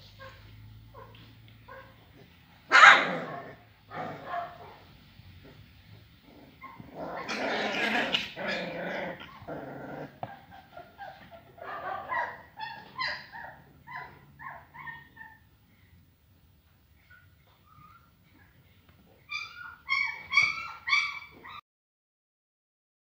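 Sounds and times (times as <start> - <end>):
puppies growling: 0.2 - 16.0
puppies yipping and whimpering: 6.5 - 15.5, 17.0 - 18.5, 19.1 - 21.6.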